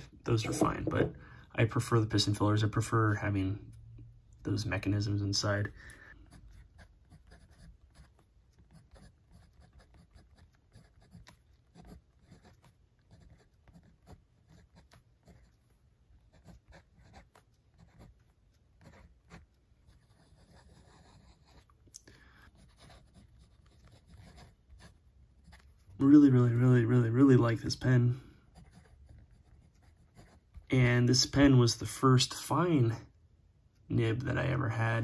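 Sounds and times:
pen nib scratching on paper: 6.2s - 21.8s, 22.4s - 25.9s, 28.5s - 30.7s.

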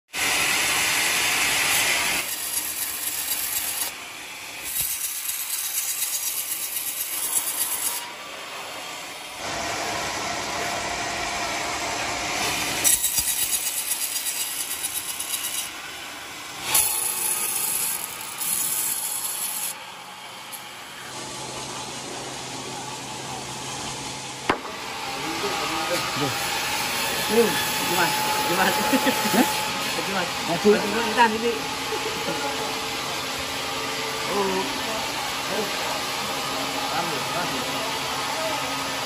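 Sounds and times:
band saw rasping through logs: 0.2s - 4.0s, 4.6s - 8.2s, 12.3s - 15.9s, 16.6s - 19.8s, 25.3s - 33.2s.

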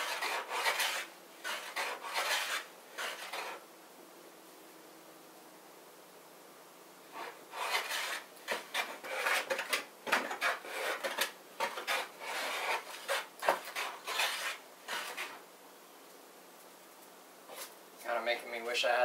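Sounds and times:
hand plane shaving wood: 0.0s - 3.6s, 7.2s - 15.4s.

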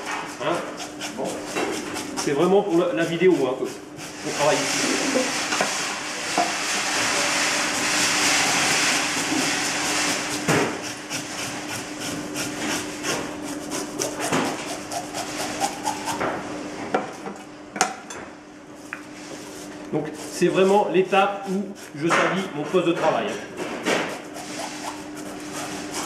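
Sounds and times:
knife scraping fish scales: 0.0s - 5.5s, 7.6s - 16.2s, 19.5s - 26.0s.

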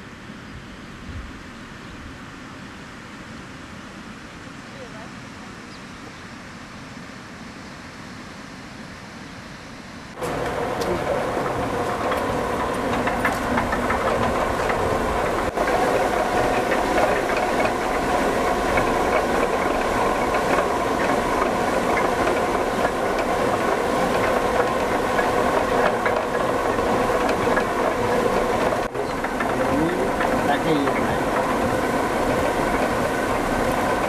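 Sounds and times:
millstones clattering hum: 10.2s - 34.0s.

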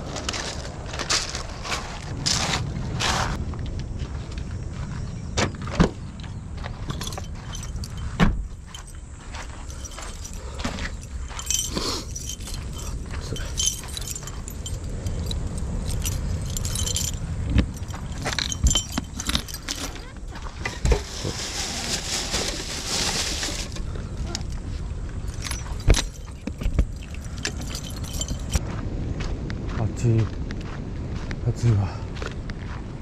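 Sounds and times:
keys jangling: 6.8s - 28.6s.

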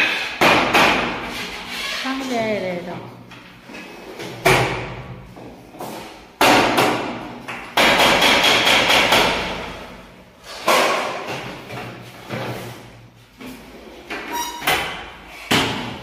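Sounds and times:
bangs on metal window frame: 6.4s - 9.8s.

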